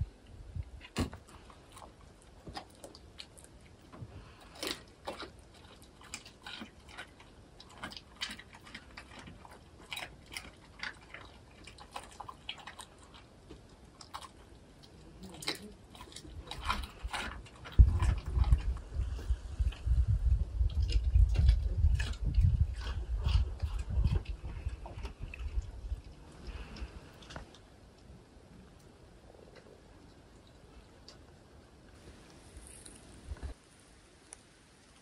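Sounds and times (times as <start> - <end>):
dog chewing and crunching: 0.7 - 28.0.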